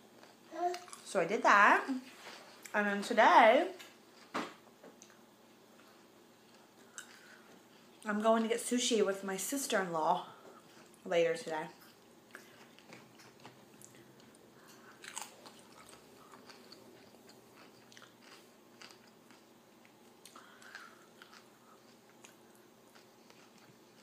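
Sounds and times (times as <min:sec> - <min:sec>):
person crunching chips: 0:14.9 - 0:19.5, 0:20.2 - 0:24.0.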